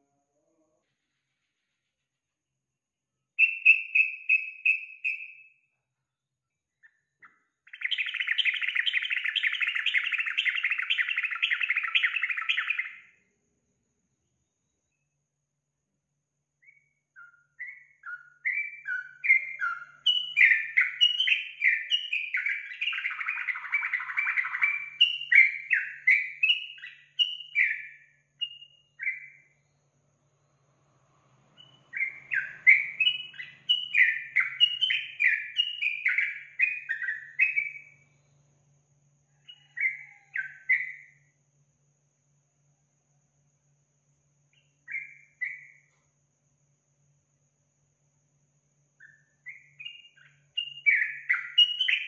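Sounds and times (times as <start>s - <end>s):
bulbul chattering song: 3.4s - 5.6s, 7.2s - 13.1s, 16.6s - 29.6s, 31.5s - 38.1s, 49.0s - 52.0s.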